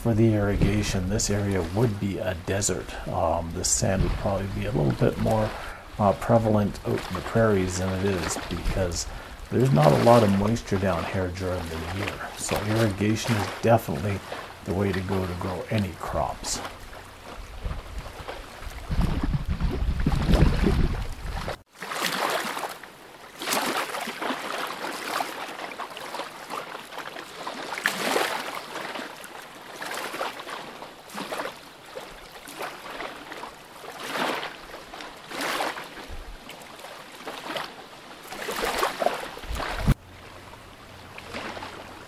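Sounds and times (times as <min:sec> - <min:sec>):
wind rumbling on microphone: 0:00.0 - 0:21.6, 0:38.6 - 0:40.1
small waves lapping on shore: 0:00.0 - 0:42.0.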